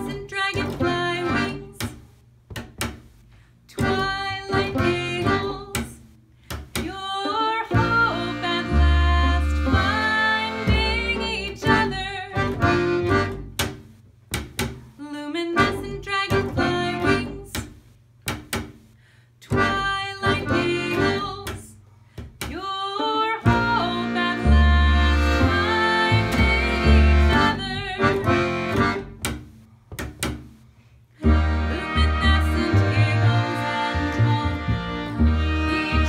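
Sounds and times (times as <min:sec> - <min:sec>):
accordion: 0:00.0 - 0:01.9, 0:03.7 - 0:06.1, 0:06.8 - 0:14.0, 0:15.4 - 0:17.6, 0:19.4 - 0:21.7, 0:22.9 - 0:29.6, 0:31.2 - 0:36.0
woman singing: 0:00.0 - 0:01.9, 0:03.7 - 0:06.0, 0:06.8 - 0:12.6, 0:15.0 - 0:17.6, 0:19.4 - 0:21.7, 0:22.5 - 0:28.5, 0:31.6 - 0:34.8, 0:35.5 - 0:36.0
double bass: 0:00.0 - 0:36.0
violin: 0:31.2 - 0:36.0.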